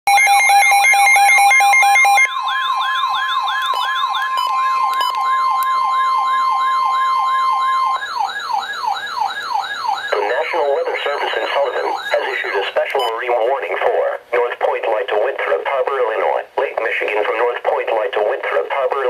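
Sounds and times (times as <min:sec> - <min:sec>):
rapid two-tone beeping: 0:00.1 - 0:13.2
steady high alert tone: 0:00.1 - 0:14.0
falling siren-like sweep: 0:00.7 - 0:10.3.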